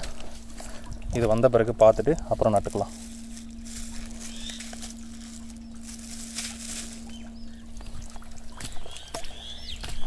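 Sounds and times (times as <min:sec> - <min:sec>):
steady low hum: 0:00.0 - 0:10.0
rustles and clicks: 0:02.4 - 0:07.2
faint high bird chirps: 0:04.1 - 0:10.0.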